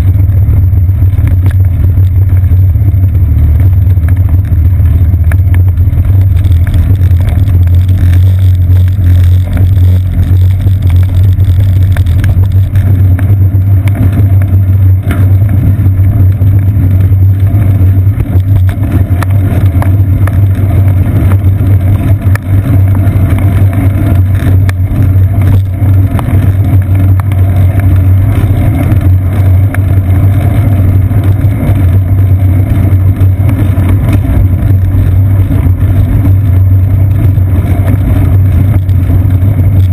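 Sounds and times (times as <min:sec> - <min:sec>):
low rumble of road and wind: 0:00.0 - 0:39.9.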